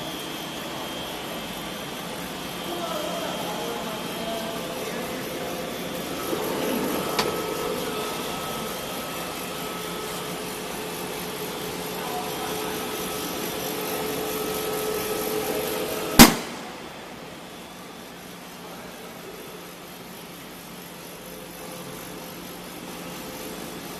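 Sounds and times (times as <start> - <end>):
hydraulic machine humming: 0.0 - 23.9
sharp bang: 16.2 - 16.7.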